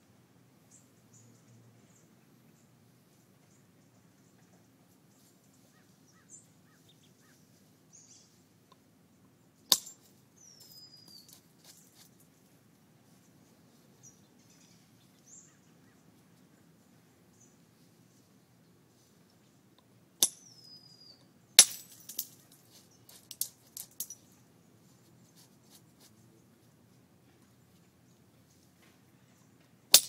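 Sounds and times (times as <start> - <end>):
sharp crack of stone striking: 9.7 - 10.0, 21.6 - 22.3.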